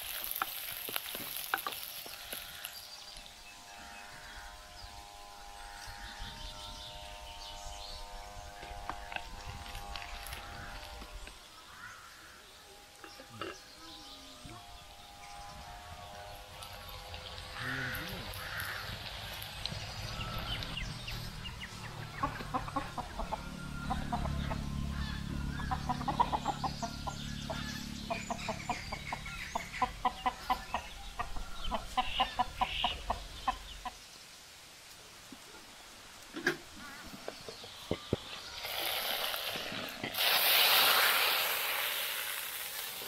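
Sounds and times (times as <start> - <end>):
low rumble: 18.3 - 29.5
hen clucking rapidly: 22.0 - 24.6, 25.6 - 34.0.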